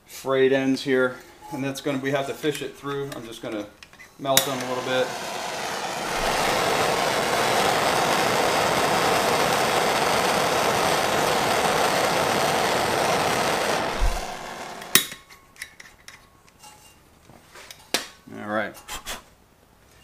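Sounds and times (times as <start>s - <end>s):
gas torch hissing: 4.3s - 15.2s.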